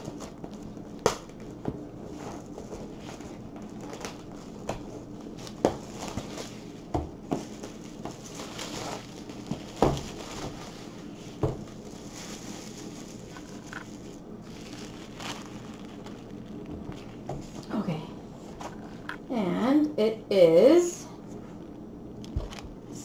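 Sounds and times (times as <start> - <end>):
plastic shrink wrap crinkling: 0.0 - 17.8, 22.2 - 22.8.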